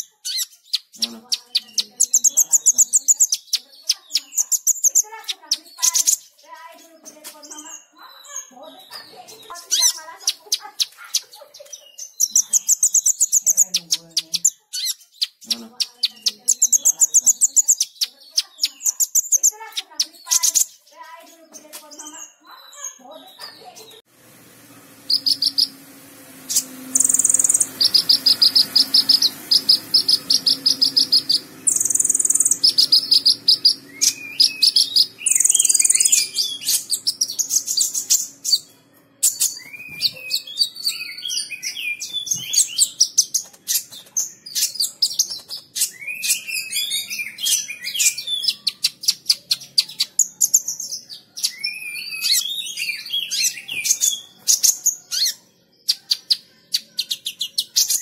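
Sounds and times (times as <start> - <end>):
bird chirps and twittering: 0.0 - 58.0
sunbird singing: 0.0 - 58.0
high buzzy bird notes: 24.1 - 43.1
bird rattling trills: 24.4 - 40.8.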